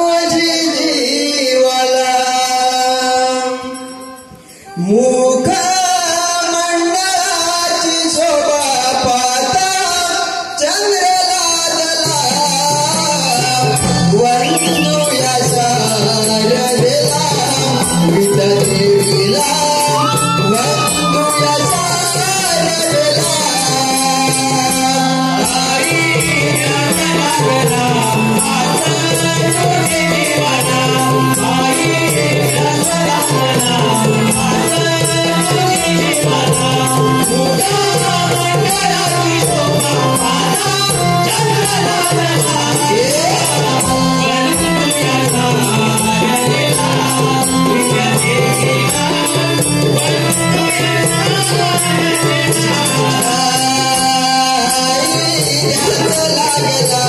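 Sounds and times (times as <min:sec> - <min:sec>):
man singing: 0:00.0 - 0:57.0
rattling percussion: 0:01.8 - 0:57.0
held accompanying notes: 0:12.0 - 0:57.0.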